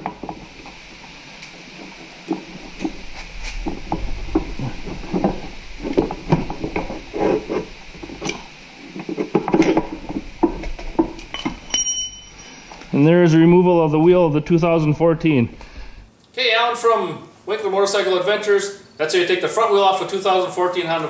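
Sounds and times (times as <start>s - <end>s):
metal axle scraping and knocking: 0.0s - 12.8s.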